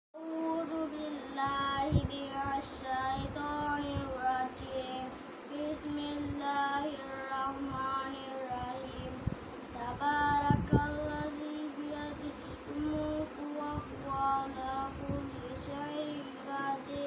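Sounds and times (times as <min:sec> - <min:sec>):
boy chanting recitation: 0:00.2 - 0:17.0.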